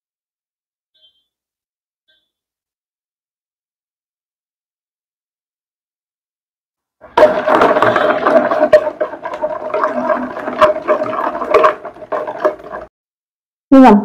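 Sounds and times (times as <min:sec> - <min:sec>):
whisk beating batter in bowl: 0:07.1 - 0:12.9.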